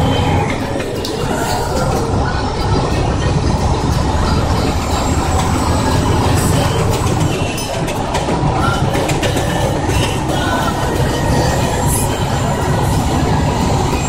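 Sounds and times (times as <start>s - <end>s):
truck cab engine and road rumble: 0.0s - 14.0s
rattles and clicks: 2.8s - 12.2s.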